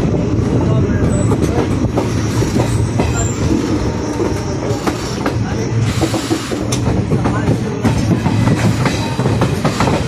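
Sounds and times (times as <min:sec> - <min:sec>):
wheels clacking over rail joints: 0:01.0 - 0:10.0
high wheel squeal: 0:02.1 - 0:06.7.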